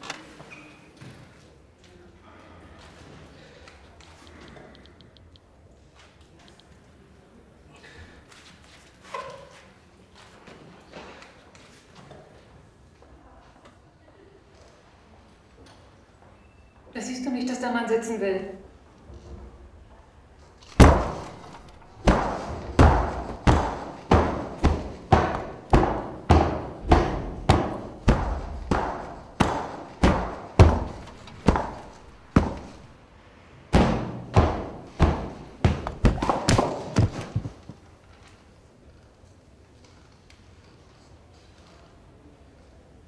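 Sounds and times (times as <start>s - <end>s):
heavy thuds: 20.7s - 33.0s, 33.7s - 37.8s.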